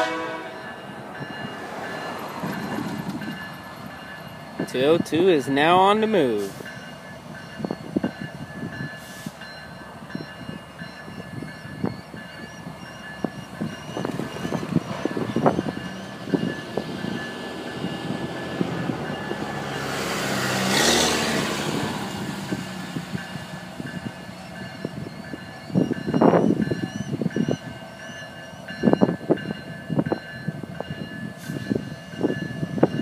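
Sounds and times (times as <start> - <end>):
distant diesel locomotives pulling: 0.0 - 33.0.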